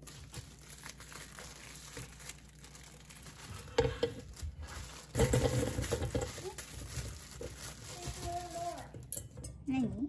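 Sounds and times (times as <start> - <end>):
plastic bag crinkling: 0.0 - 9.1
potatoes clattering into colander: 3.7 - 9.2.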